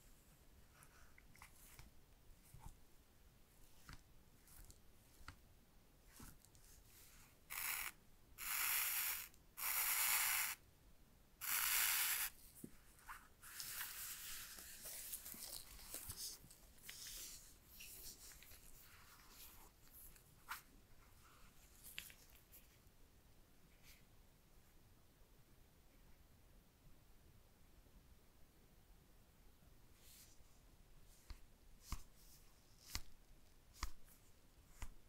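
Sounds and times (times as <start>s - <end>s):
rustling and scraping: 12.4s - 22.8s.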